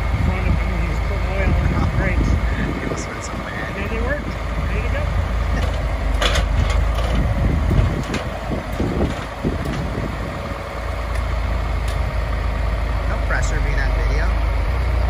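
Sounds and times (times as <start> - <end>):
tractor engine running: 0.0 - 15.0
rattles and knocks: 5.5 - 10.3.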